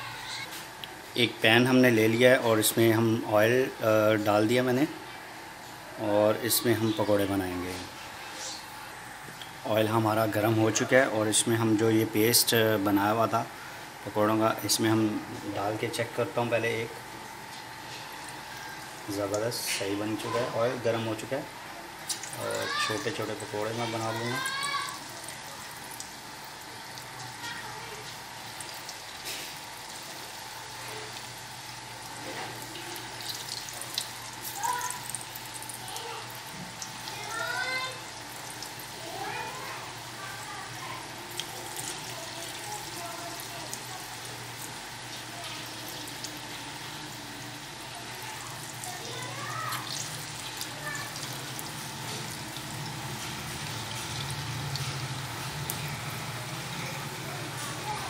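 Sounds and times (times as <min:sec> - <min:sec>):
batter deep-frying in oil: 0:00.0 - 0:58.0.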